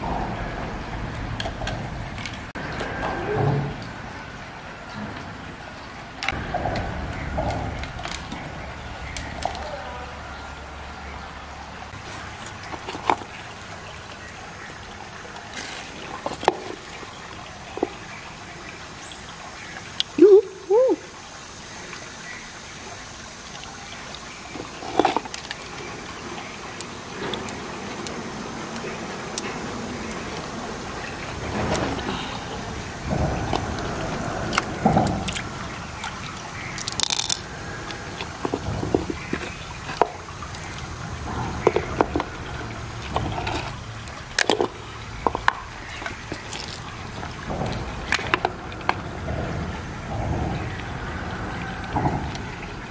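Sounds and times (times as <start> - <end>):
river water trickling: 0.0 - 52.9
wet clicks from handling mussel: 34.5 - 40.8
clam flesh squelching: 43.0 - 46.9.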